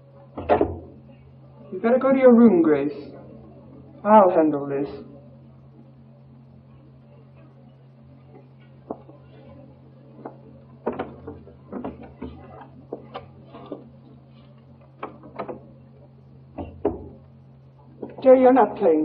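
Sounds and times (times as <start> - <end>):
low film soundtrack hum: 0.0 - 19.0
door knocks and clicks: 0.4 - 0.9, 15.0 - 15.6.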